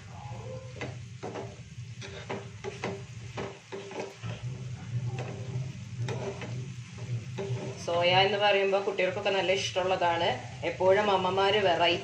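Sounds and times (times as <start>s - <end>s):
steady low hum: 0.0s - 12.0s
spatula scraping frying pan: 0.7s - 9.9s.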